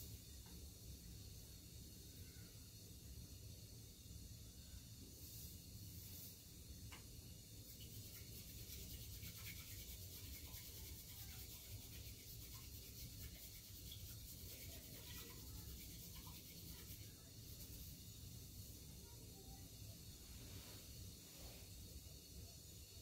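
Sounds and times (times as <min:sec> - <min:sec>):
tea whisk brushing a bowl: 0:07.6 - 0:21.9.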